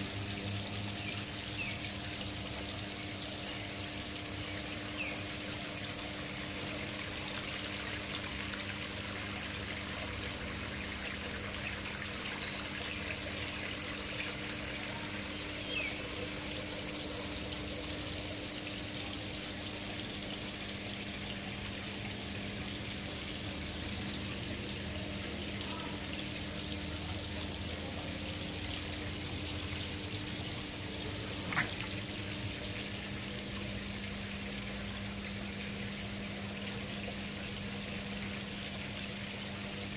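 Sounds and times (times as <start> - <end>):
pond water trickling: 0.0 - 39.9.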